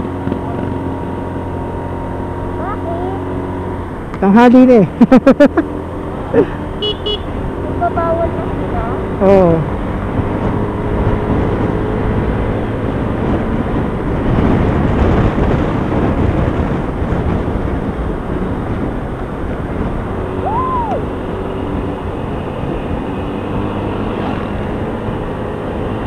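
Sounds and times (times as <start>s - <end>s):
motorcycle engine hum: 0.0s - 26.0s
wind and road noise: 0.0s - 26.0s
rising and falling tone: 20.4s - 21.2s.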